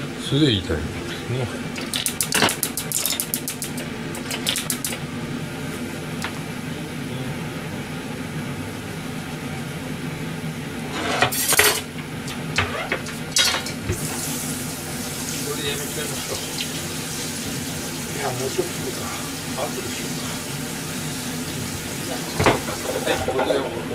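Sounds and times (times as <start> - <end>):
extractor fan hum: 0.0 - 23.9
utensils knocking on metal counter: 1.8 - 5.0, 22.2 - 23.6.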